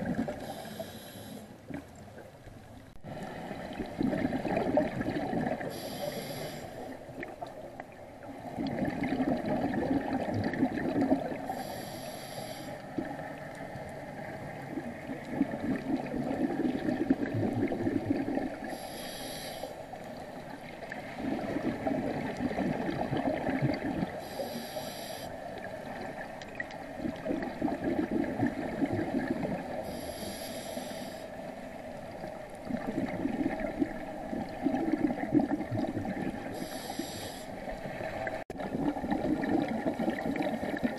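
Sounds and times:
gurgling exhaled bubbles: 0.0s - 0.6s, 3.1s - 6.0s, 7.1s - 11.7s, 14.1s - 18.9s, 20.4s - 24.4s, 25.6s - 30.0s, 32.0s - 36.9s, 37.6s - 40.9s
regulator inhalation hiss: 0.4s - 1.5s, 5.7s - 7.0s, 11.5s - 12.9s, 18.7s - 19.9s, 24.2s - 25.4s, 29.8s - 31.4s, 36.5s - 37.6s.

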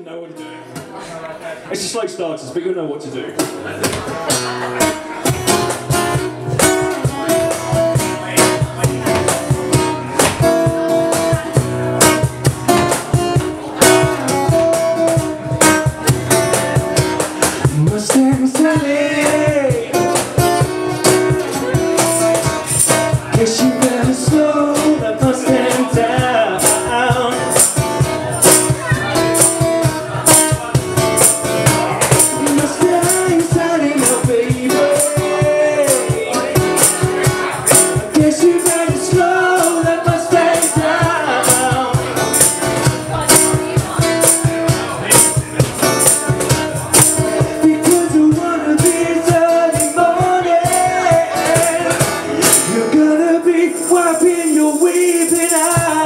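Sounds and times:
acoustic guitar strumming: 3.3s - 56.0s
man singing: 6.2s - 56.0s.

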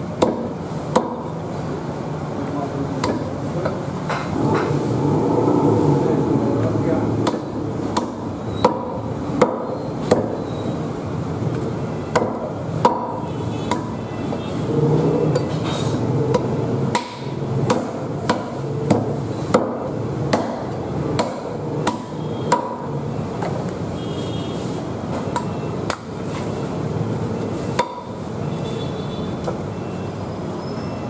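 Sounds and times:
cleaver chopping on wooden block: 0.2s - 1.2s, 3.0s - 3.8s, 7.2s - 10.4s, 12.1s - 14.0s, 16.3s - 22.9s.

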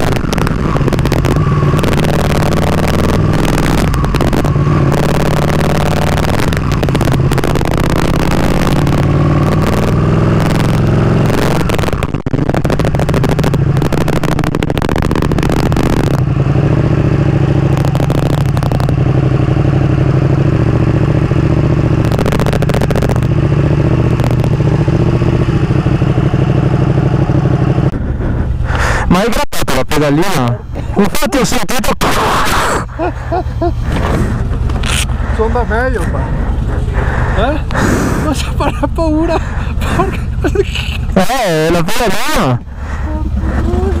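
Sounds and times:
motorcycle ahead: 0.0s - 44.0s
motorcycle engine running: 0.0s - 44.0s.

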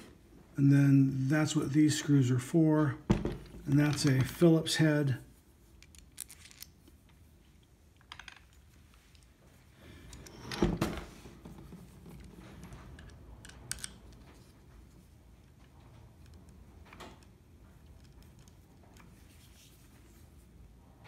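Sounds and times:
metal parts clicking and clattering: 5.8s - 6.8s, 8.0s - 9.4s, 11.8s - 14.5s.

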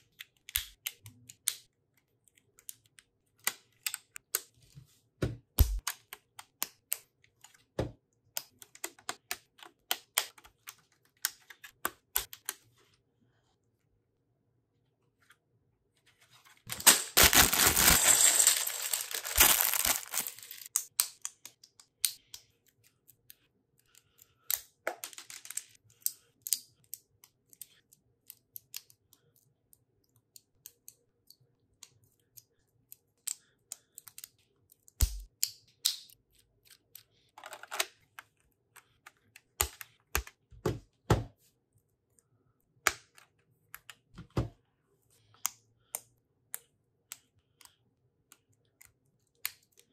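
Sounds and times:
plastic bag crinkling: 16.7s - 20.7s.

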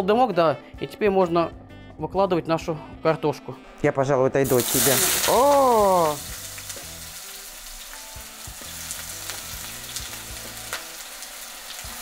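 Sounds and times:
potatoes sizzling in hot oil: 4.4s - 12.0s.

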